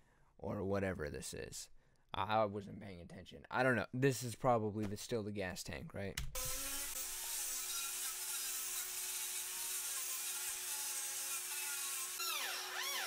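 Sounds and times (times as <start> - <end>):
angle grinder grinding metal: 6.4 - 13.0.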